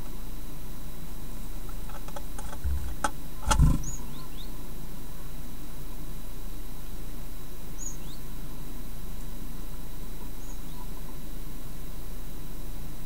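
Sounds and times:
steady electrical hiss: 0:00.0 - 0:07.7
high thin bird calls: 0:02.6 - 0:04.4.

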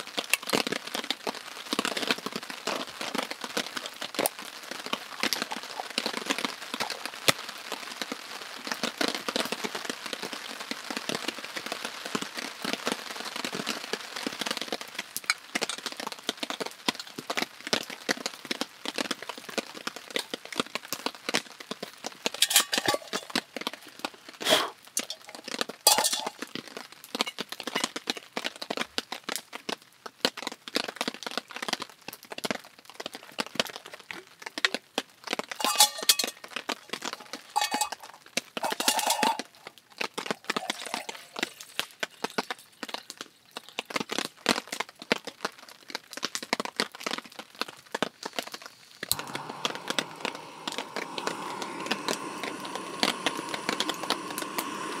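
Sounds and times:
rain falling: 0:00.0 - 0:55.0
metal clinks of cook pot: 0:22.4 - 0:23.3, 0:25.9 - 0:26.3, 0:35.6 - 0:36.4, 0:37.5 - 0:38.0, 0:38.6 - 0:39.4.

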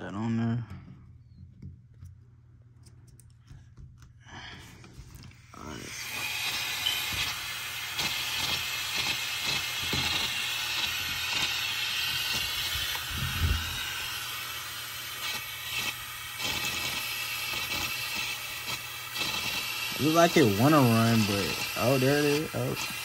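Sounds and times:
paper engine clicks and taps: 0:01.6 - 0:04.2
air hissing through a tube: 0:04.5 - 0:23.0.

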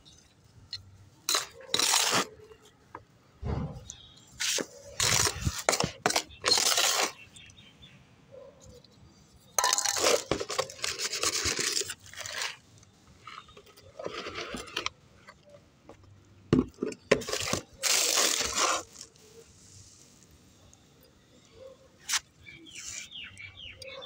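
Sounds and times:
scoop scraping soil: 0:01.3 - 0:02.6, 0:04.4 - 0:07.3, 0:09.6 - 0:14.9, 0:17.0 - 0:20.4.

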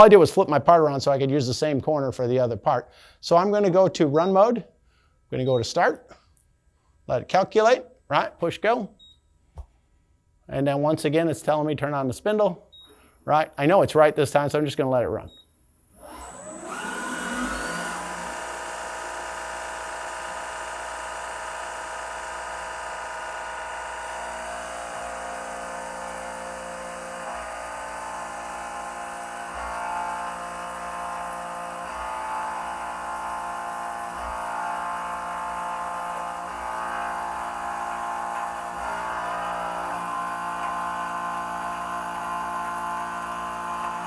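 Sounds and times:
milling machine spindle whine: 0:16.0 - 0:44.0.

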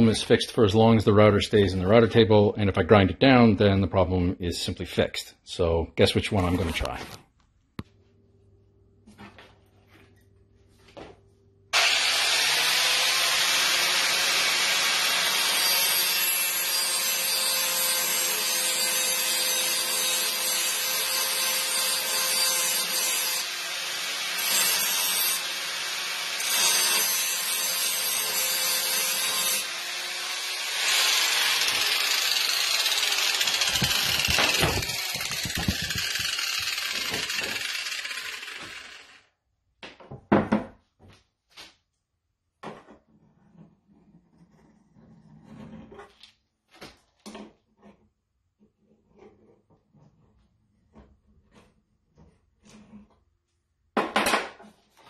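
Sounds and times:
angle grinder grinding metal: 0:11.8 - 0:39.3.

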